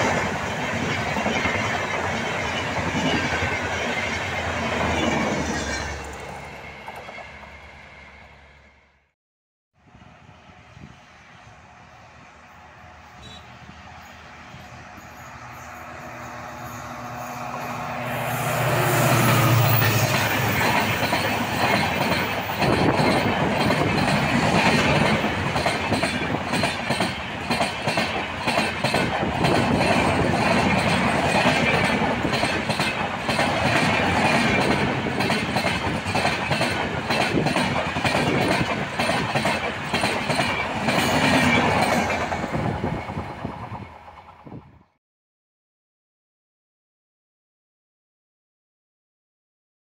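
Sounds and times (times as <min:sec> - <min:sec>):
train coaches rushing past: 0:00.0 - 0:08.9, 0:09.9 - 0:45.0
diesel locomotive engine: 0:00.0 - 0:09.1, 0:09.8 - 0:45.0
wheels clacking over rail joints: 0:18.6 - 0:44.4.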